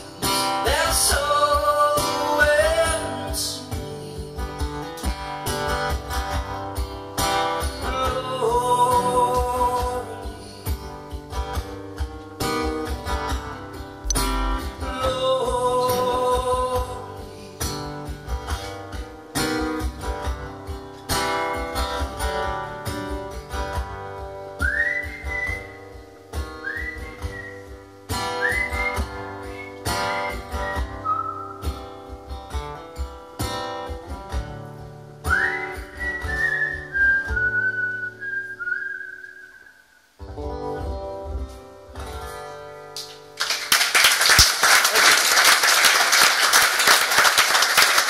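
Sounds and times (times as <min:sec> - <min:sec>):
acoustic guitar strummed: 0:00.0 - 0:43.4
whistled melody: 0:24.6 - 0:26.0, 0:26.6 - 0:31.7, 0:35.3 - 0:40.0
audience applauding: 0:43.0 - 0:48.0.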